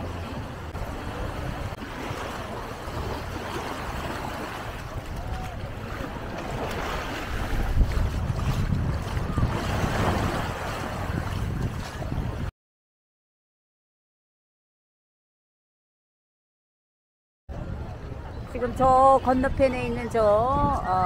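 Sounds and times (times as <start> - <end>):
surf washing onto shore: 0.0 - 12.5
wind buffeting microphone: 0.0 - 12.5, 17.5 - 21.0.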